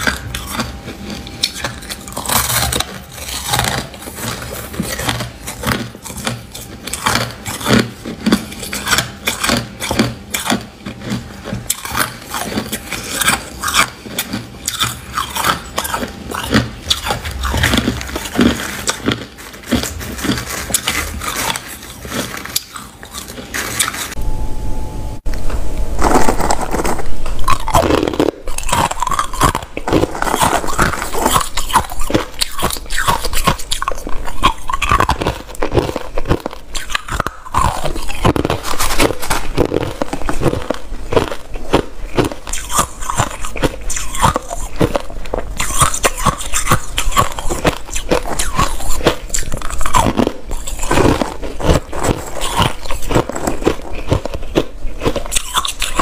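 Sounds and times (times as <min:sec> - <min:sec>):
crunching ice being chewed: 0:00.0 - 0:24.2, 0:25.8 - 0:56.0.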